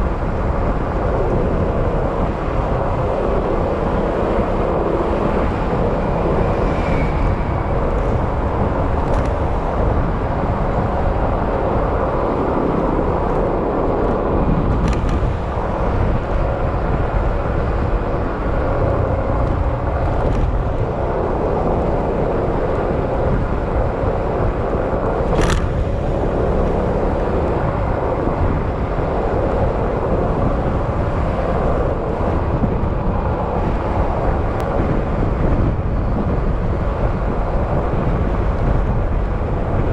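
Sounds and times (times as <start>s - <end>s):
wind and road noise: 0.0s - 39.9s.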